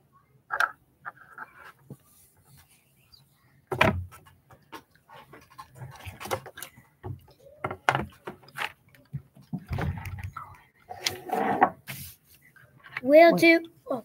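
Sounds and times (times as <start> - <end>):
knocks and rustling: 3.7 - 10.5.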